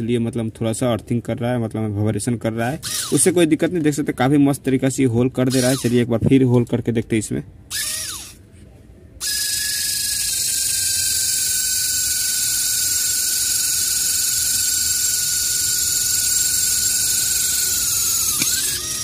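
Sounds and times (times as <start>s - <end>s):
drill motor whining: 2.8s - 3.4s, 5.5s - 6.1s, 7.7s - 8.4s, 9.2s - 19.0s.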